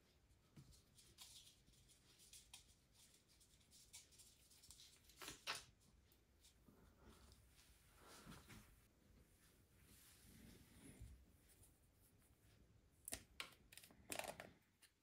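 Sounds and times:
oil syringe handling clicks and rustles: 0:13.0 - 0:15.0.

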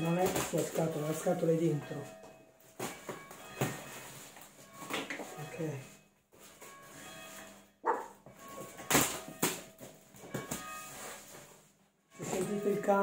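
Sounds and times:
bells ringing faintly: 0:00.0 - 0:13.0
dog barking: 0:07.8 - 0:08.2.

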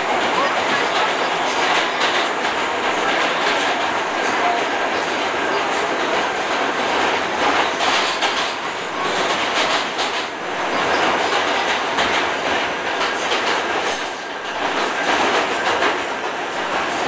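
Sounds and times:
subway car rattling: 0:00.0 - 0:17.0.

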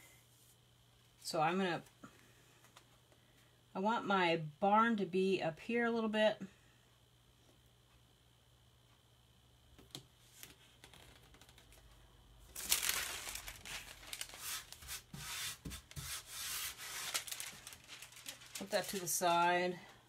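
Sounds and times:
sheet crinkling and rustling: 0:10.3 - 0:19.4.

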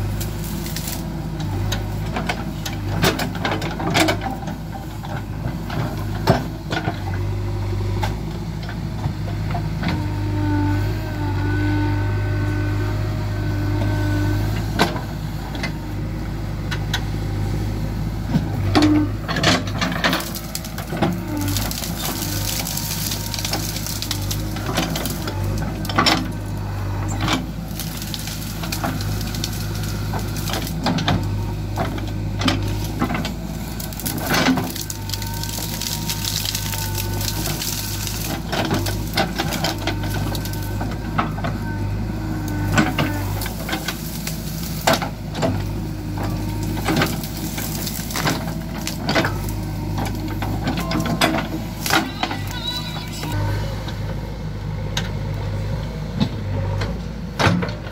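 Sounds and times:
diesel engine running: 0:00.0 - 0:57.9
branches cracking and snapping: 0:19.6 - 0:41.4, 0:42.4 - 0:53.3.

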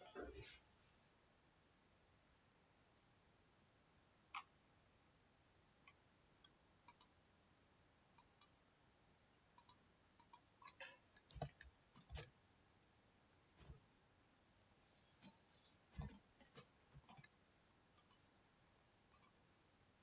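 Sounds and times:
computer mouse clicks: 0:04.3 - 0:04.6, 0:05.8 - 0:07.2, 0:08.1 - 0:08.6, 0:09.5 - 0:12.3, 0:14.9 - 0:18.3, 0:19.1 - 0:19.4.

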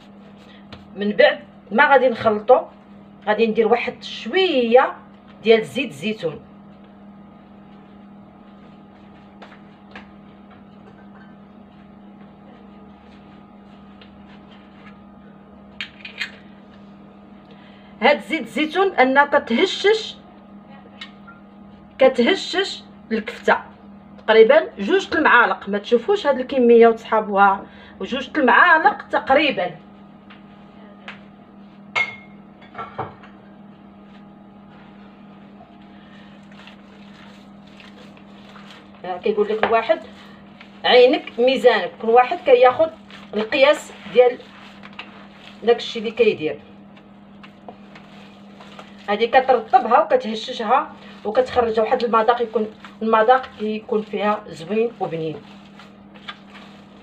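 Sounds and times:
steady low hum: 0:00.0 - 0:57.0
hands working minced meat: 0:36.2 - 0:46.3, 0:46.9 - 0:57.0.

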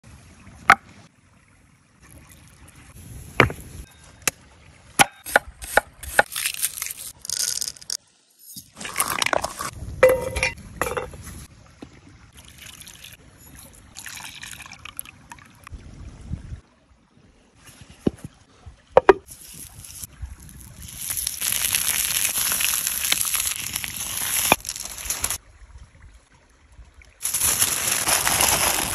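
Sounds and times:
dry ingredients pouring into bowl: 0:27.2 - 0:28.9.

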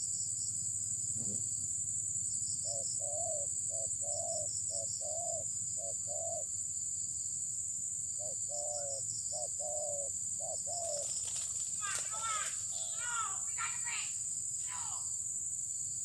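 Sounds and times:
high pulsing insect trill: 0:00.0 - 0:16.0
insects droning: 0:00.0 - 0:16.0
dove cooing: 0:02.6 - 0:06.5, 0:08.2 - 0:12.9.

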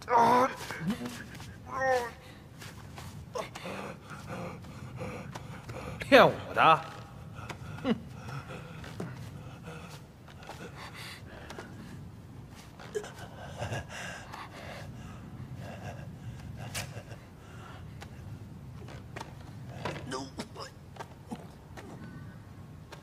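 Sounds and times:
person gasping and breathing: 0:00.0 - 0:06.0
soft rustles: 0:00.4 - 0:06.1, 0:06.8 - 0:23.0
steady low rumble: 0:00.7 - 0:22.9.

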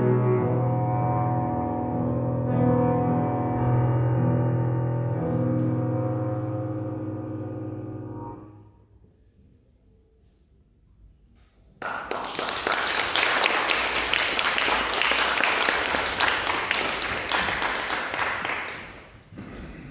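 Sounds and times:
audience applause: 0:11.8 - 0:19.2.

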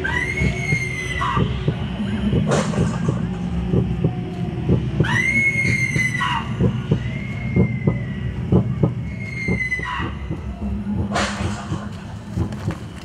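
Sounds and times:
high-pitched scream: 0:00.0 - 0:01.6, 0:05.0 - 0:08.4, 0:09.0 - 0:10.4
low hum: 0:00.0 - 0:13.0
low irregular thumps: 0:00.4 - 0:05.1, 0:06.0 - 0:13.0.

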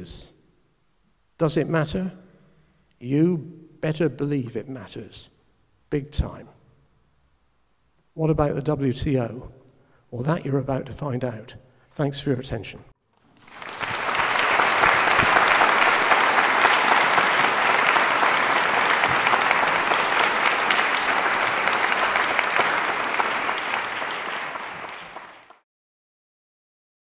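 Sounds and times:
audience applauding: 0:13.3 - 0:25.6.

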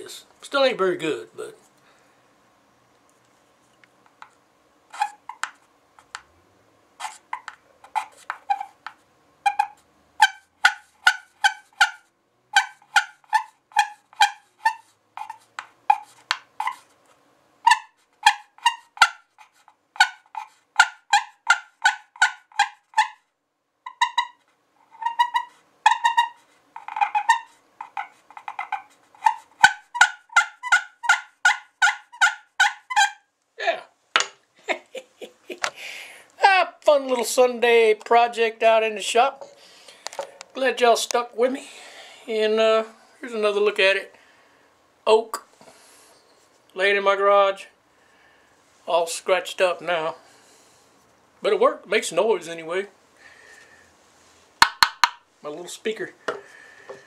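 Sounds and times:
turkey call yelping notes: 0:09.4 - 0:16.8, 0:17.6 - 0:23.2, 0:23.9 - 0:33.3.

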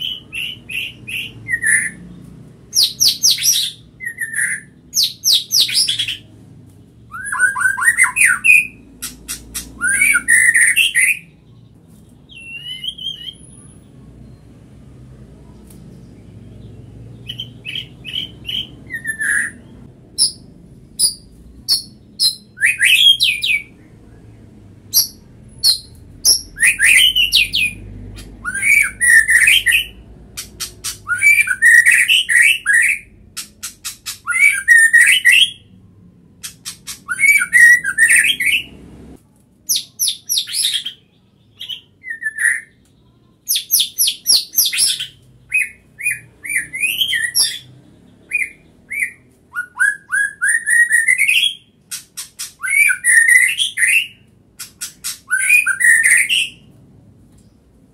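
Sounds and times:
bird whistling and clicking: 0:07.2 - 0:11.2, 0:25.0 - 0:35.6, 0:36.4 - 0:38.6, 0:48.4 - 0:56.5.

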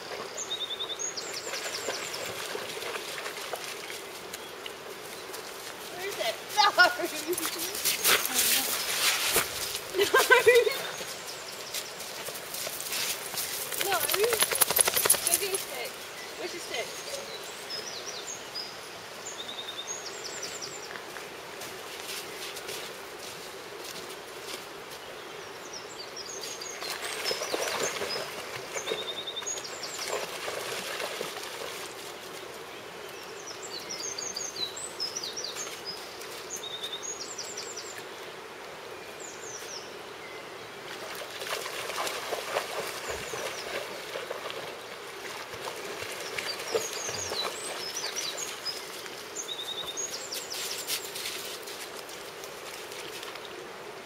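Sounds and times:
small birds chirping: 0:04.3 - 0:21.2, 0:25.0 - 0:30.4, 0:46.1 - 0:51.6
river running over stones: 0:26.4 - 0:32.6, 0:40.7 - 0:54.0.

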